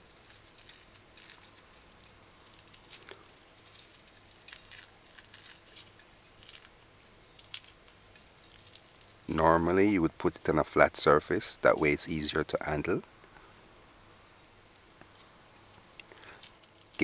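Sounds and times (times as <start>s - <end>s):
fish skin peeling: 0.0s - 9.4s, 13.4s - 17.0s.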